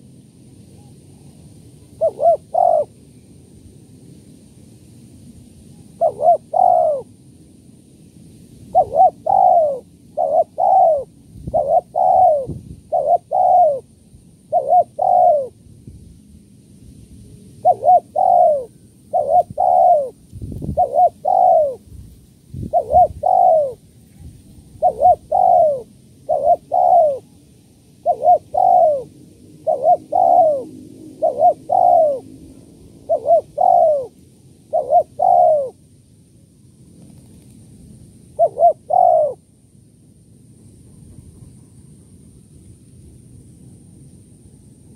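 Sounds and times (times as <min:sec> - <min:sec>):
dove cooing: 0:00.7 - 0:03.0, 0:05.7 - 0:07.2, 0:08.7 - 0:15.6, 0:17.6 - 0:21.9, 0:22.6 - 0:27.4, 0:28.0 - 0:35.8, 0:38.3 - 0:39.5.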